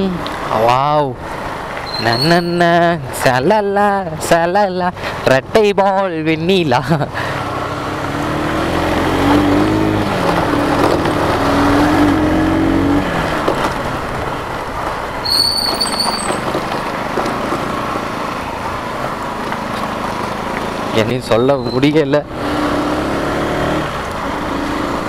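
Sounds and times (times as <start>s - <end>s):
motorcycle engine: 7.1s - 25.0s.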